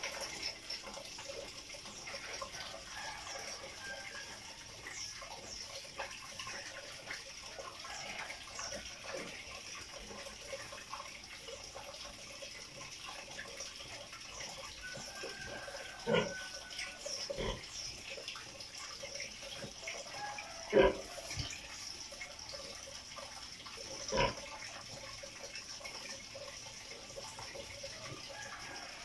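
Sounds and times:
water trickling and dripping: 0.0s - 29.0s.

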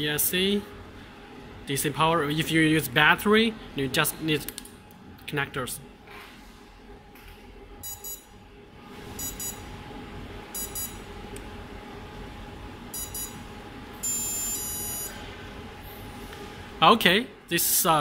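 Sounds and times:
faint steady hum: 0.0s - 18.0s
long electronic tone: 9.2s - 9.7s, 12.9s - 15.2s.

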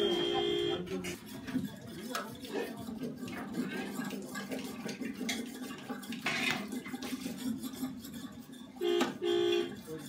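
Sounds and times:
metal ladle scraping pot: 0.0s - 10.0s.

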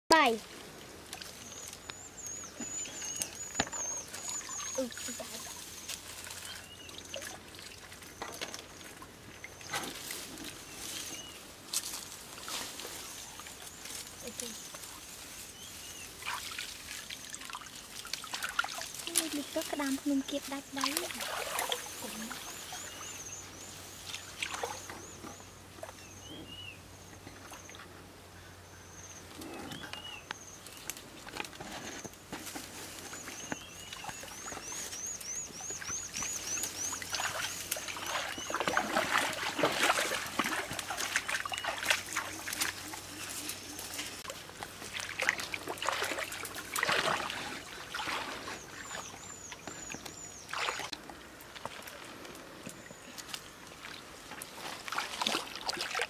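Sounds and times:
dry grass rustling: 0.2s - 7.0s, 8.8s - 24.8s, 30.6s - 49.1s
high chirping calls: 1.4s - 7.4s, 33.1s - 38.8s.

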